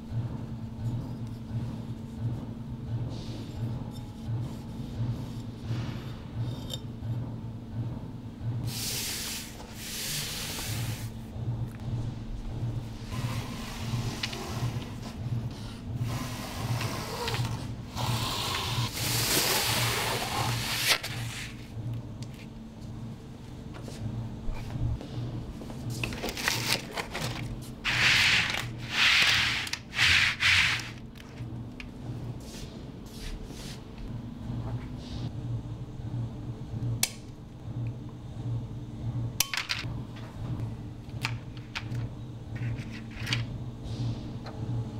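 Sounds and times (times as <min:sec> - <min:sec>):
hands rubbing plastic mat: 0:26.1 - 0:31.4.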